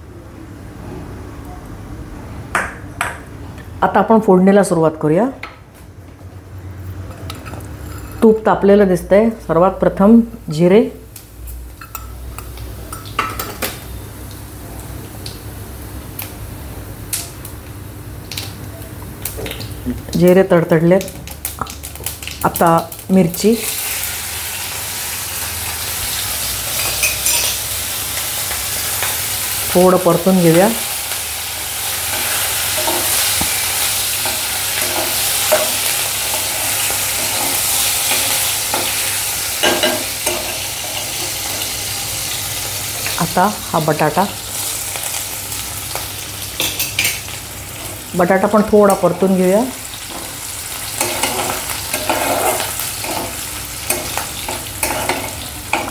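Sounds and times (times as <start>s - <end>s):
faint sizzle: 6.3s - 55.9s
seeds popping in hot oil: 17.1s - 23.4s, 30.5s - 40.7s
spatula scraping pan: 50.1s - 55.9s.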